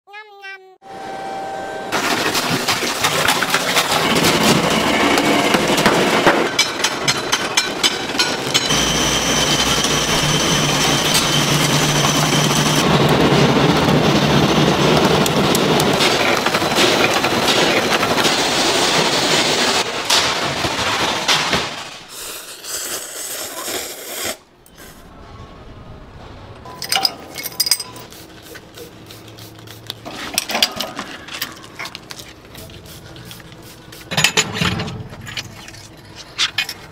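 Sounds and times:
steady high machine whine: 0.8 - 2.0, 4.0 - 19.8
factory machinery clatter and hum: 1.1 - 22.1, 25.1 - 36.9
metal clinks and knocks: 26.6 - 28.1.

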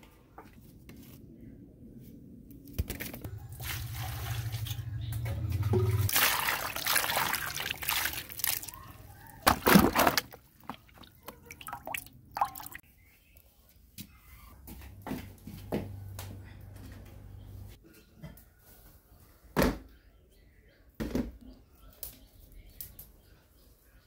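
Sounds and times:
water pouring and splashing: 3.4 - 12.8
loud splashes: 5.7 - 8.8, 9.4 - 12.8.

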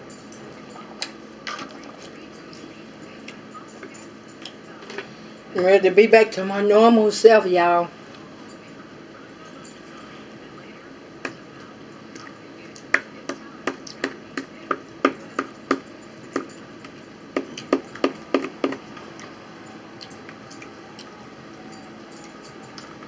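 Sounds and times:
sharp clicks and taps eating: 12.1 - 19.3.

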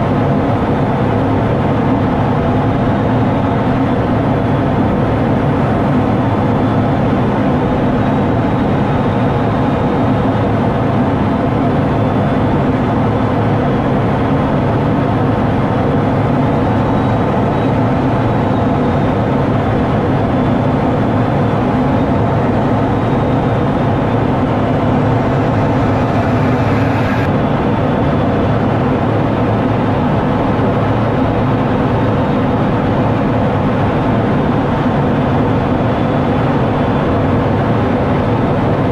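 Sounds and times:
jet engine drone in cockpit: 0.0 - 38.9.

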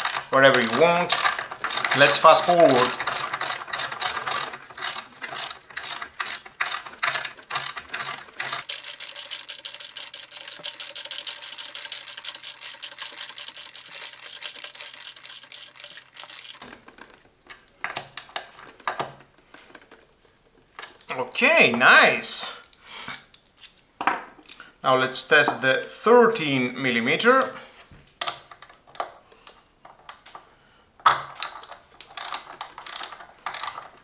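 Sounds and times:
ratchet wrench clicking rapidly: 0.0 - 16.6, 32.2 - 33.8.

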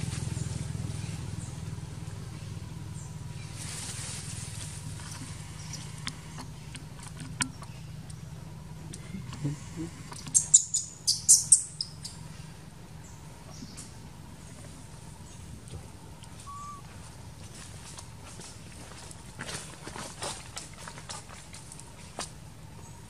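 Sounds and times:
steady low background hum: 0.0 - 23.0
high sharp bird chirps: 16.4 - 16.9.

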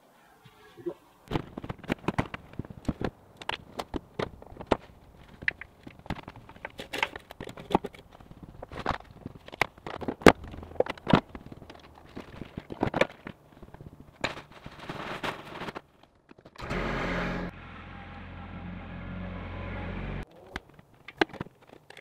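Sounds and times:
tractor engine running: 16.6 - 20.2.

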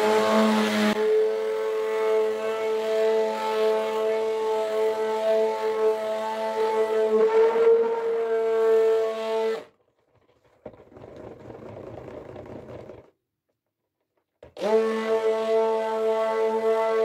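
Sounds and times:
immersion blender whining: 0.0 - 8.2, 14.5 - 15.6.

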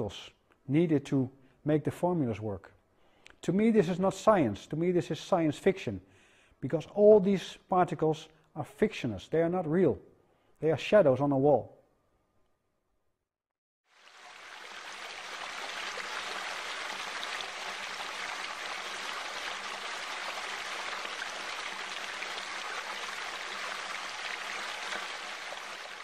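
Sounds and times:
water spilling over a weir: 13.9 - 26.0.

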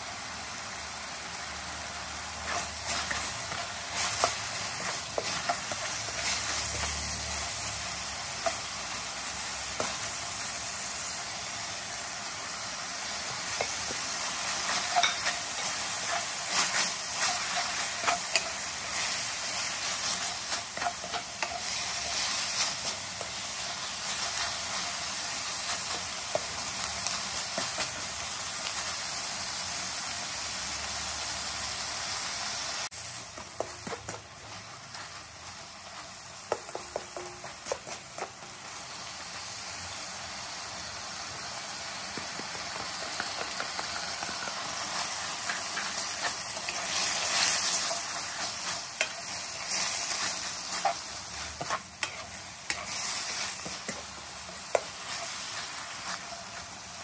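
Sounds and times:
food sizzling in a wok: 0.0 - 57.0
spatula scraping a pan: 2.4 - 7.2, 13.5 - 24.8, 42.5 - 57.0.

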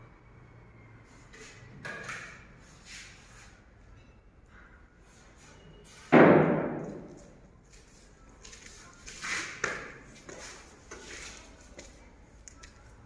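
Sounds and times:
loud echoing bang: 6.1 - 7.1
soft knocks and scuffs: 6.7 - 12.8.

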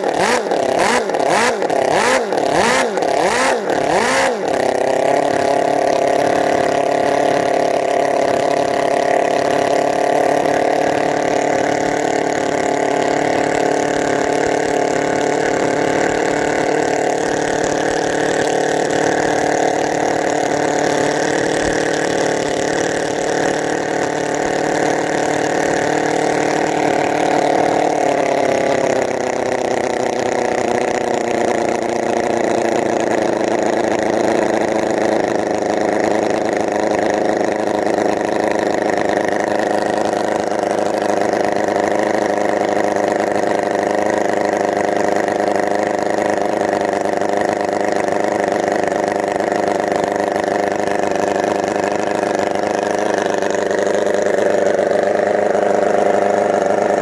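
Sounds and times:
model engine running: 0.0 - 57.0.

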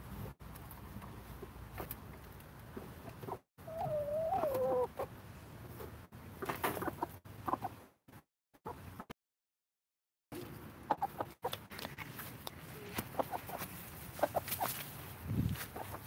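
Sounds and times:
chickens clucking: 2.8 - 7.9, 8.7 - 9.1, 10.4 - 12.0, 12.8 - 15.0, 15.6 - 16.0
chicken long wavering call: 3.6 - 4.9.

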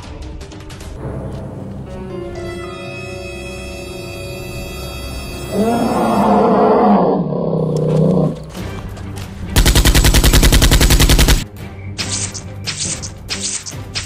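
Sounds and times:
deep growling roar: 5.5 - 8.6
rapid machine-gun fire: 9.6 - 11.4.

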